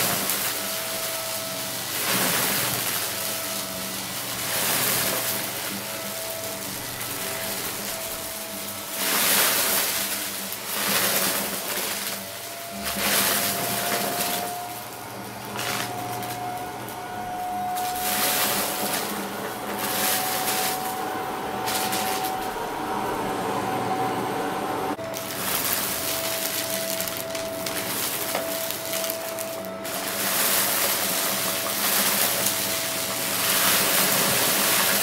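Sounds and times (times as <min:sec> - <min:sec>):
vacuum cleaner motor whine: 0:00.0 - 0:35.0
rattling of sucked up beads: 0:25.1 - 0:35.0.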